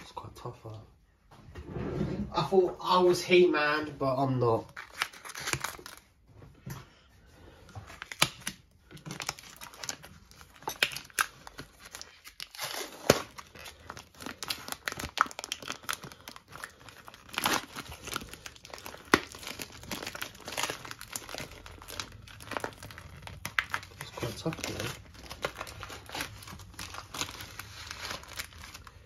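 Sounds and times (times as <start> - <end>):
plastic wrap crinkling: 4.2 - 6.3, 7.8 - 29.0
plastic film snapping: 4.7 - 6.0, 7.9 - 28.9.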